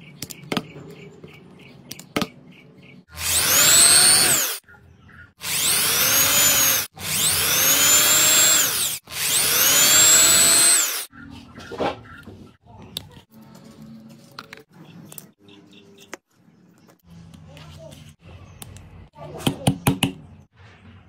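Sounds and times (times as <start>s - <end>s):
electric drill whine: 3.2s - 4.6s, 5.4s - 11.1s.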